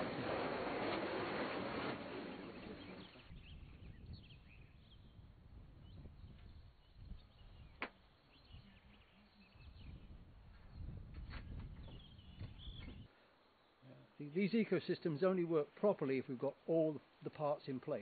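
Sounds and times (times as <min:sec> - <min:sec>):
faint bird chirps: 0:05.8 - 0:14.2.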